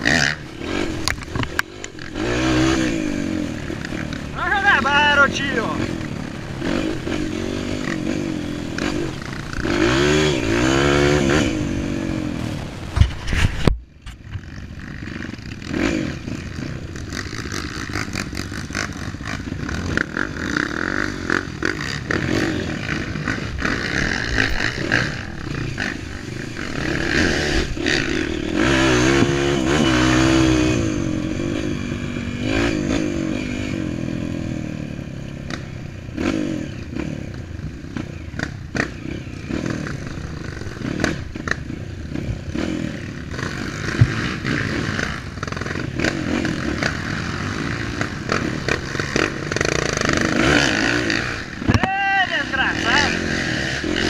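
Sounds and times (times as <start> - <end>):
dirt bike engine revving: 0.0 - 54.0
bike knocks and rattles: 43.6 - 44.8.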